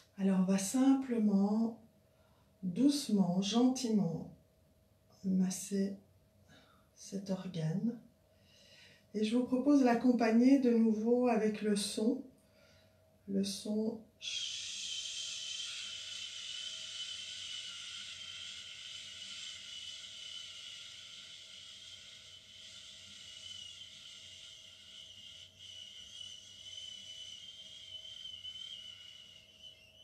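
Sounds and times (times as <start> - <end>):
person breathing out shhh: 14.2 - 29.2.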